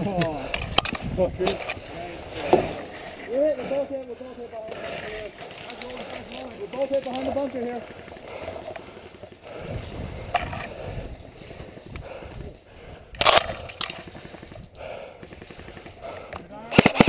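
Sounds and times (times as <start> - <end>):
rustling through undergrowth: 4.5 - 10.3
sharp crack: 13.2 - 17.0.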